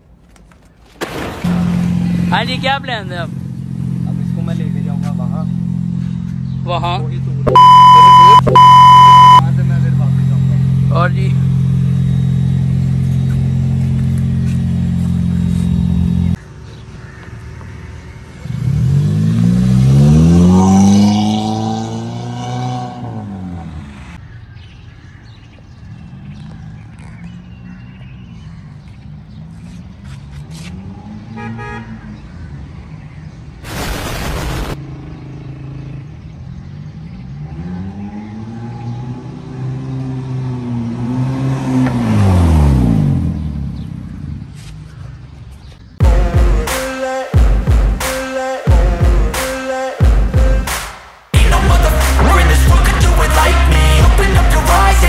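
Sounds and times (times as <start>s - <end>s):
car engine revving: 1.5s - 16.4s, 18.4s - 24.2s, 51.4s - 55.0s.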